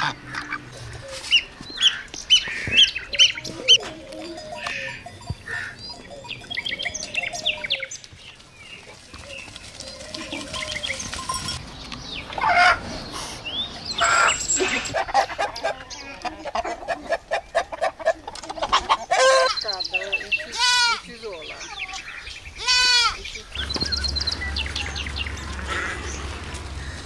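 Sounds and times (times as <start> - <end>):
chickens calling harshly: 0.0 - 8.1, 12.2 - 27.0
high bird chirps: 2.3 - 8.0.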